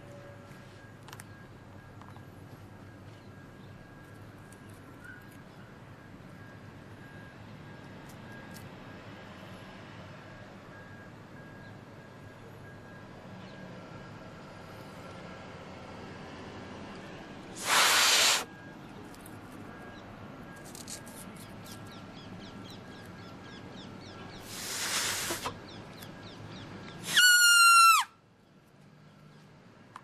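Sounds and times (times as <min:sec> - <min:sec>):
breathy hissing blows: 0:17.6 - 0:18.5, 0:24.4 - 0:25.6, 0:27.0 - 0:27.5
grass-blade whistle squeal: 0:27.0 - 0:28.2.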